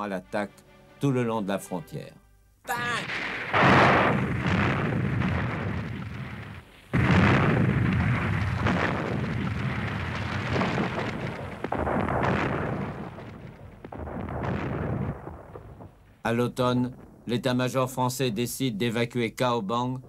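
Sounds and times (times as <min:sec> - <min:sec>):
gunshots: 0:02.7 - 0:17.6
explosions rumbling: 0:02.7 - 0:20.0.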